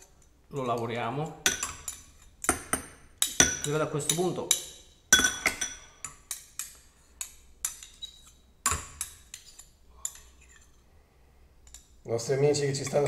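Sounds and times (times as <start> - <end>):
metal utensils clinking on plate: 1.5 - 10.8.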